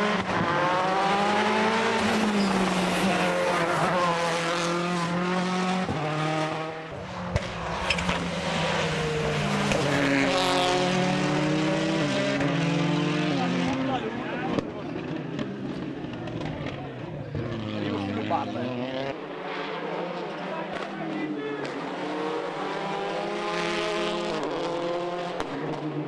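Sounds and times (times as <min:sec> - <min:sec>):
rally car engine revving: 0:00.0 - 0:26.0.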